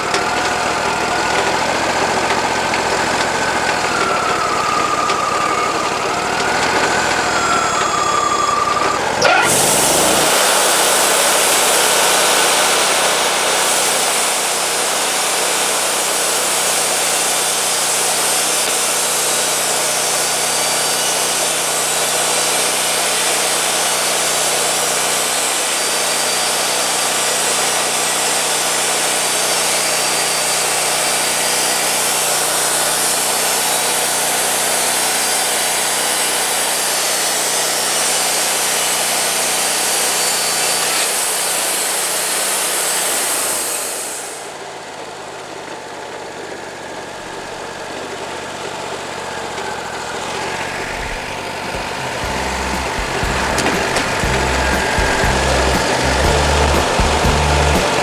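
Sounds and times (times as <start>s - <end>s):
sawmill engine under load: 0.0s - 58.0s
band blade hissing through wood: 9.2s - 12.8s.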